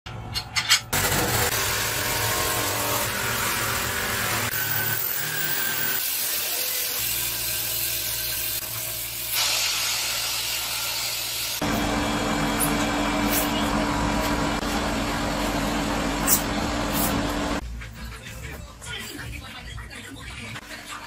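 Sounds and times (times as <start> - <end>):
rasp buffing machine: 1.0 - 9.3
rotary grinder whine: 1.0 - 17.6
motor hum: 11.3 - 17.6.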